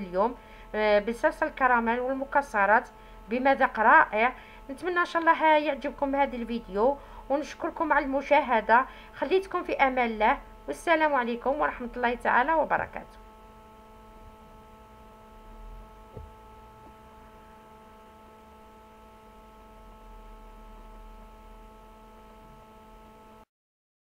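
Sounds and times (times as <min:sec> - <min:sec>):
room tone hum: 0:00.0 - 0:23.5
faint tap: 0:16.1 - 0:16.4.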